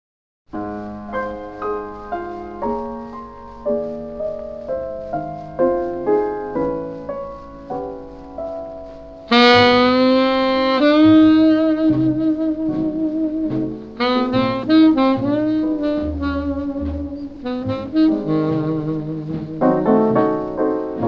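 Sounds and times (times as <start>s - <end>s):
piano chords: 0.5s - 21.0s
tenor saxophone held notes: 9.2s - 21.0s.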